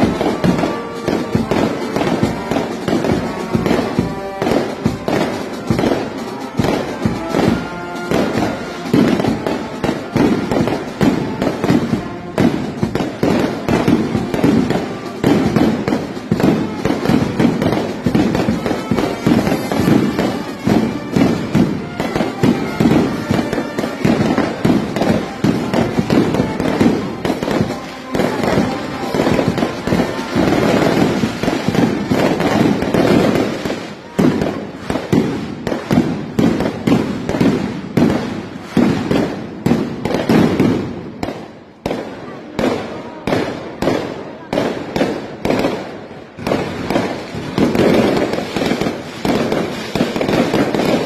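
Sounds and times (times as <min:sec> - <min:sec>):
brass band playing: 0:00.0 - 0:51.0
firecrackers crackling and banging: 0:00.0 - 0:51.0.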